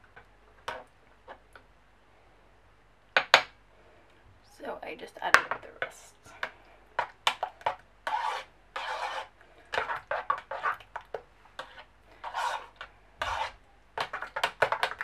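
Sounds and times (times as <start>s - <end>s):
utensil scraping a saucepan: 7.3s - 15.0s.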